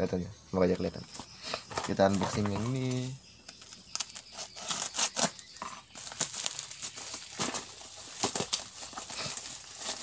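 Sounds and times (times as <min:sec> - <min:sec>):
packaging crinkling: 0:02.0 - 0:10.0.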